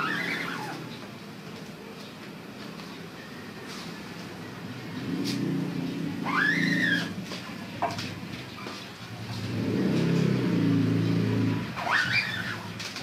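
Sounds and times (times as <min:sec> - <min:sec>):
short rising squeak: 0:00.0 - 0:00.9, 0:06.2 - 0:07.2, 0:11.8 - 0:12.7
vehicle engine hum: 0:00.0 - 0:13.0.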